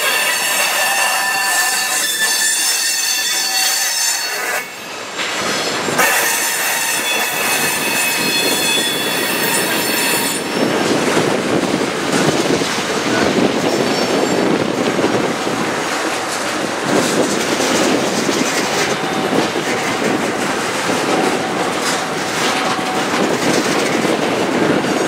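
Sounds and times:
train wheels squealing: 0.0s - 10.8s
wheels clattering on rail: 0.0s - 25.0s.

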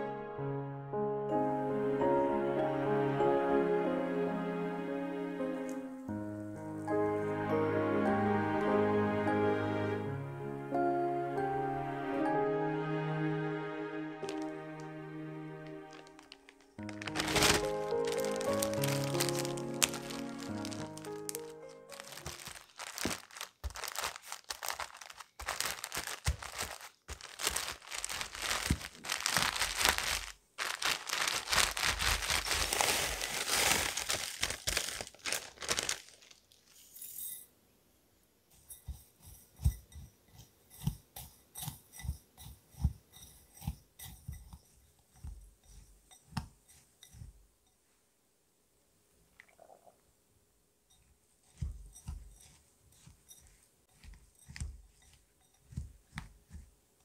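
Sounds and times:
cookies crunching in plastic bag: 14.2s - 14.9s, 15.5s - 36.9s
spatula scraping glass bowl: 38.5s - 47.4s, 50.9s - 56.0s.

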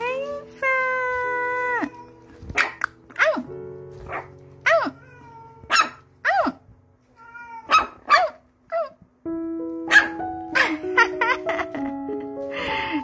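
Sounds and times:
background music: 0.0s - 7.0s, 9.1s - 13.0s
puppy yipping: 4.1s - 6.6s, 7.3s - 9.0s, 9.9s - 10.7s.

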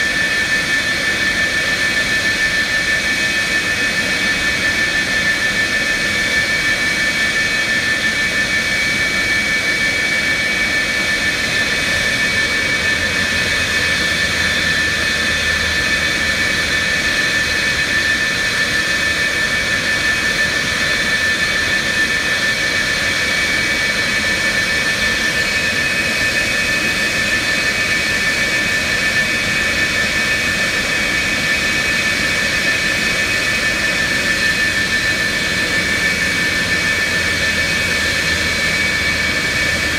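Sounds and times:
jet engines idling: 0.0s - 39.9s.

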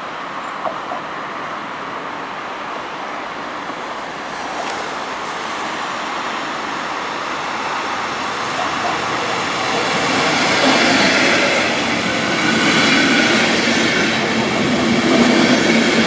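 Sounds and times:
road traffic noise: 0.0s - 16.0s
train running noise: 0.0s - 16.0s.

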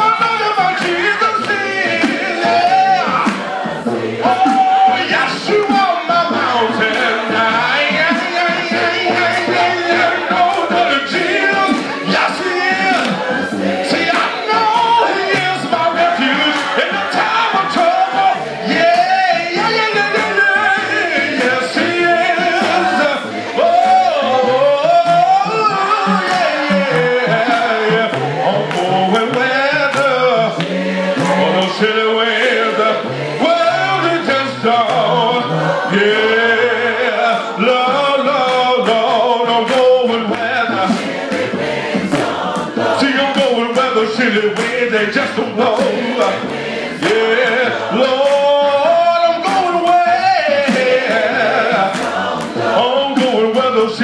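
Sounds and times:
man singing into a microphone: 0.0s - 41.6s, 42.5s - 54.0s
congregation singing along: 0.0s - 54.0s
sharp hand claps: 0.1s - 3.7s, 5.5s - 6.2s, 6.8s - 7.2s, 10.4s - 10.9s, 12.7s - 15.8s, 16.4s - 17.1s, 18.8s - 20.4s, 24.9s - 31.7s, 37.2s - 51.2s, 51.8s - 52.6s.

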